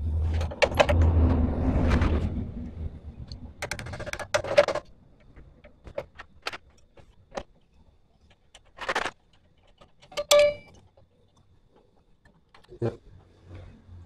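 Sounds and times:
metal clinks and rattles: 8.6s - 11.0s.

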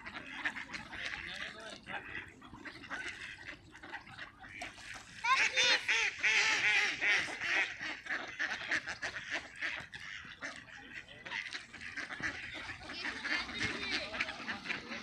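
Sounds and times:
water birds calling: 0.0s - 15.0s.

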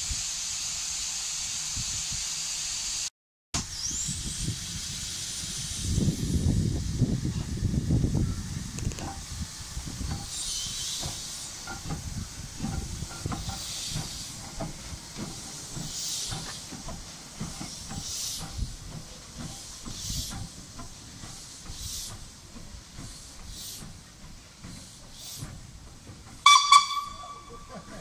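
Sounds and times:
steam hissing: 0.0s - 28.0s
steam locomotive exhaust chuffs: 0.0s - 28.0s
wheels clanking and rumbling: 5.8s - 28.0s.

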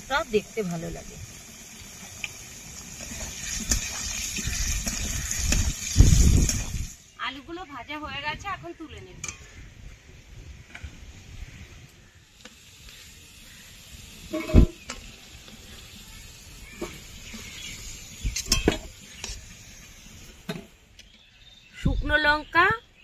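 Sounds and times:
hot oil sizzling: 0.0s - 20.9s
metal spatula scraping pan: 14.3s - 14.8s.

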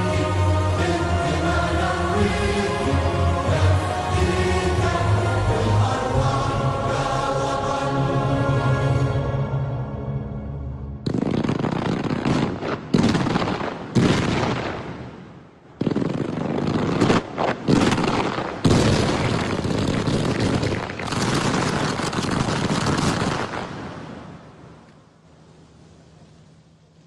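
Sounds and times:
loud firework bursts: 11.0s - 15.0s, 15.8s - 24.2s
rushing crackling of fireworks: 11.0s - 24.5s.

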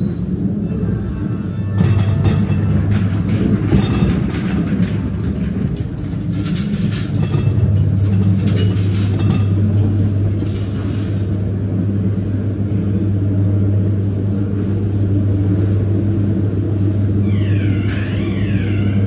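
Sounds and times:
clattering knocks: 0.0s - 11.4s
ride car rumbling on track: 0.0s - 19.0s
steady low hum: 0.0s - 19.0s.

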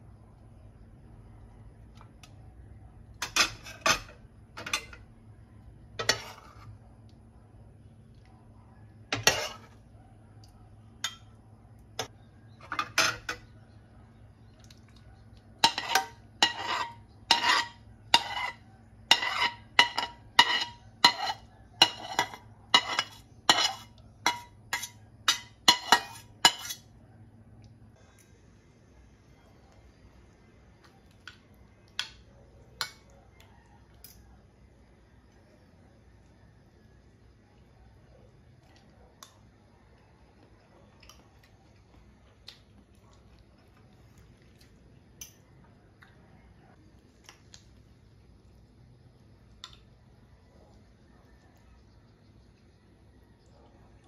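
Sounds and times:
metal ladle scraping steel pan: 6.0s - 6.7s, 9.2s - 9.8s, 15.6s - 26.8s.

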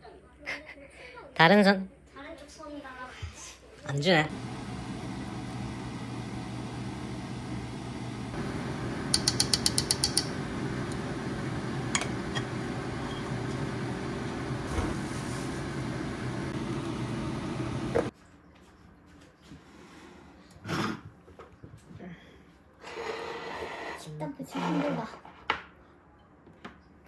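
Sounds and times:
sharp clicks: 9.1s - 10.3s.

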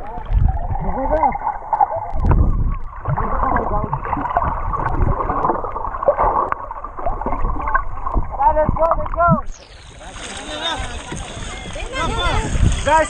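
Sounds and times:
underwater splashing and bubbling: 0.0s - 13.0s.

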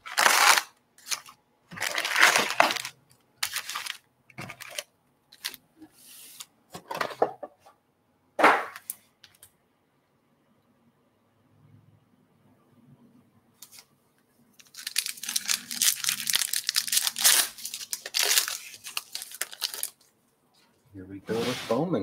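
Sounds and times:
foil packs crinkling: 0.0s - 5.6s, 14.6s - 20.0s.

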